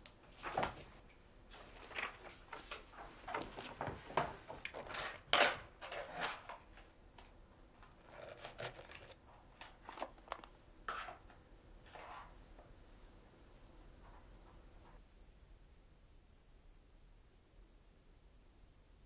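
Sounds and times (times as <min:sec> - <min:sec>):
crickets chirping: 0:00.0 - 0:19.0
scratching and rustling: 0:00.2 - 0:06.7, 0:07.8 - 0:11.2, 0:11.8 - 0:12.4.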